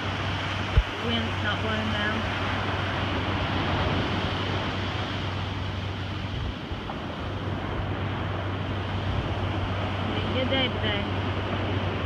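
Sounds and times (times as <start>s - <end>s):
ocean surf washing up beach: 0.0s - 12.0s
wind on microphone: 0.0s - 12.0s.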